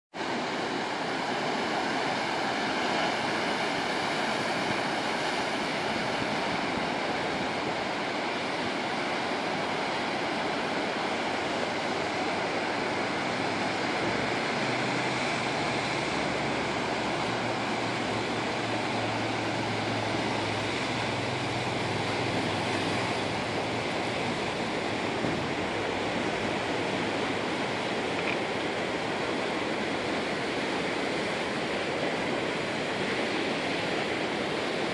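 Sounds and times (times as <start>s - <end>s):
surf breaking on rocks: 0.2s - 34.9s.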